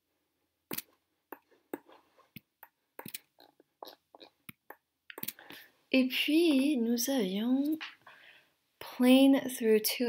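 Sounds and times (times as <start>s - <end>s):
soft breathy noise: 7.9s - 8.8s.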